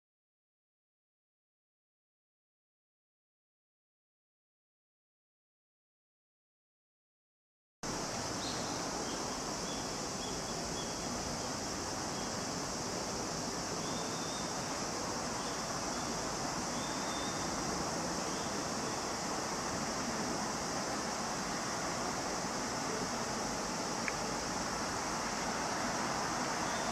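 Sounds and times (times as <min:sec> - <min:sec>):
bright high hiss: 0:07.9 - 0:26.9.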